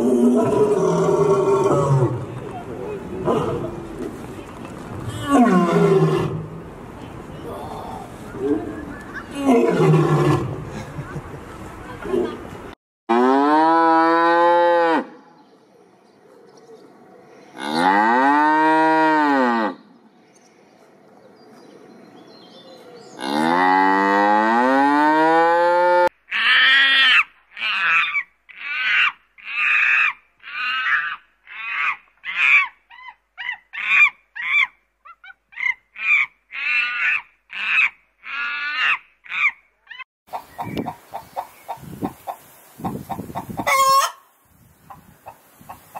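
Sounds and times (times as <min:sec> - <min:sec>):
chickens clucking: 0:40.3 - 0:45.9.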